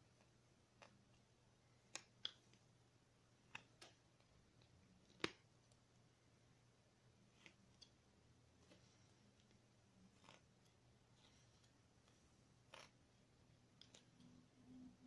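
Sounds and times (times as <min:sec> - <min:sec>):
knife carving wood clicks: 0:01.8 - 0:02.6, 0:03.5 - 0:04.0, 0:05.0 - 0:05.4.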